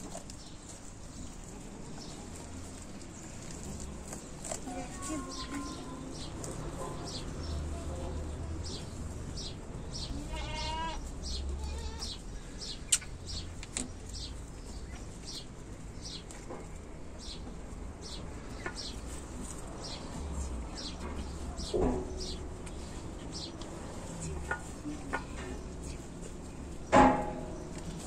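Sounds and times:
goat bleating: 10.0 - 12.2.

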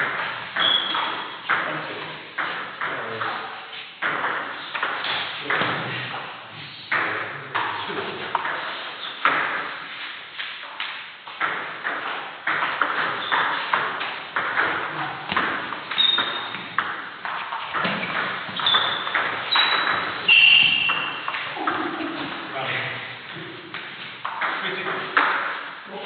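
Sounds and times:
short high squeaks: 0.6 - 1.4, 15.9 - 16.6, 18.6 - 21.3.

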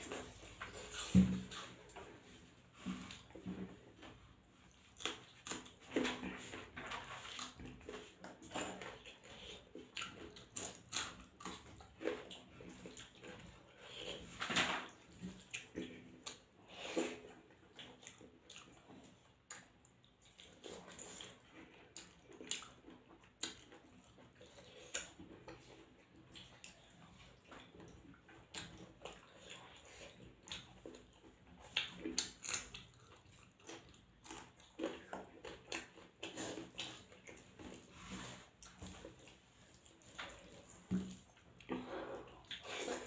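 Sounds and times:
wet chewing and lip smacks: 17.2 - 43.0.

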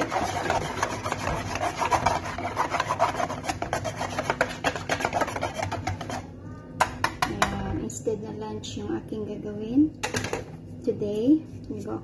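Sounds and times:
whisk beating batter in bowl: 0.0 - 6.3.

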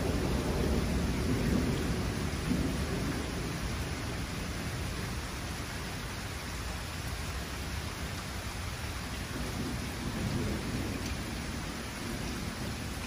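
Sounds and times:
low rumble of thunder: 0.0 - 6.4, 9.0 - 13.0
rain falling on trees: 0.0 - 13.0.

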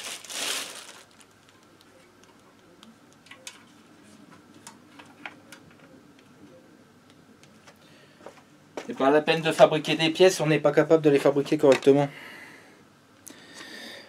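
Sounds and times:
plastic bag crinkling: 0.0 - 1.6.

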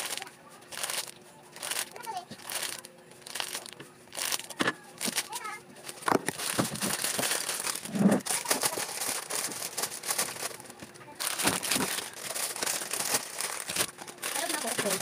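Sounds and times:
plastic sachets crinkling: 0.0 - 15.0.

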